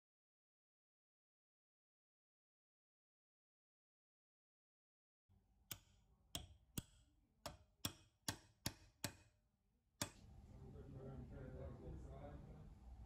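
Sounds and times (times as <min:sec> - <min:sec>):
sharp metal clicks: 0:05.7 - 0:09.3.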